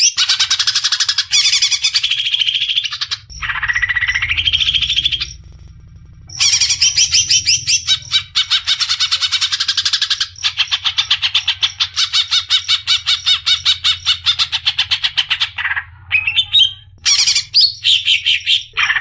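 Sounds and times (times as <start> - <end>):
bird chattering song: 0.0 - 5.4, 6.3 - 19.0.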